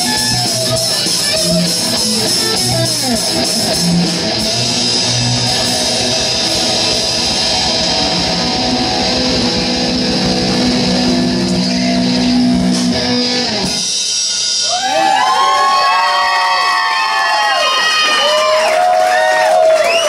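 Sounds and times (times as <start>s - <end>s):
hard rock band playing live: 0.0s - 15.2s.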